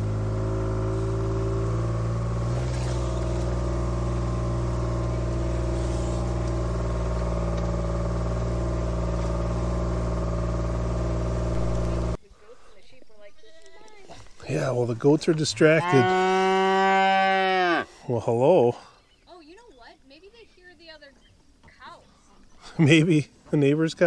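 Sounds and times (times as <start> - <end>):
farm vehicle engine running: 0.0 - 16.4.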